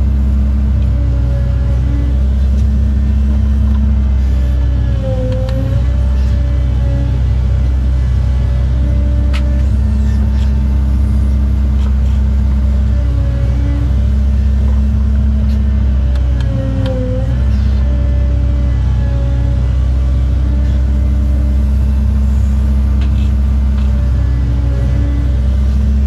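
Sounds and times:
excavator diesel engine and hydraulics: 0:00.0 - 0:26.0.

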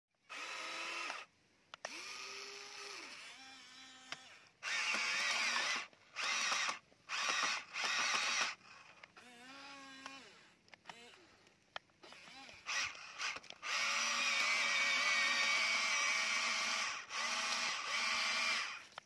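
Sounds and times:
small electric motors whining: 0:00.2 - 0:19.0
sharp clicks: 0:01.0 - 0:02.1, 0:04.1 - 0:09.2, 0:10.0 - 0:15.6.

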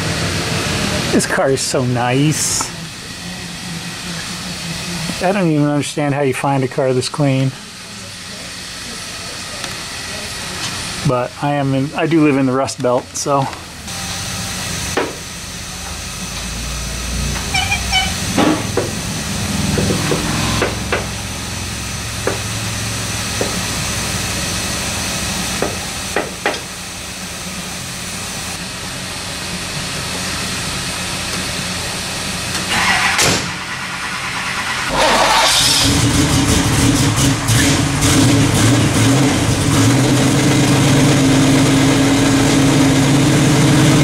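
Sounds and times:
steady low hum: 0:00.0 - 0:32.7.

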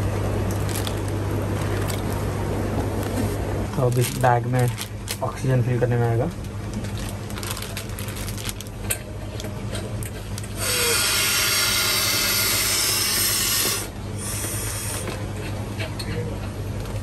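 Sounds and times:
oxygen hissing into bag: 0:10.6 - 0:15.1.

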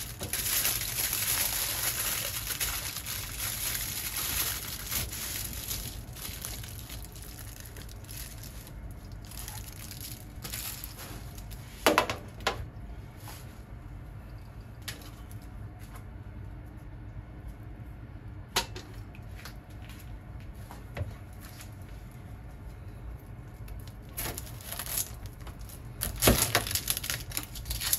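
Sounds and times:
aluminium foil crinkling: 0:00.0 - 0:11.7, 0:23.6 - 0:27.9.

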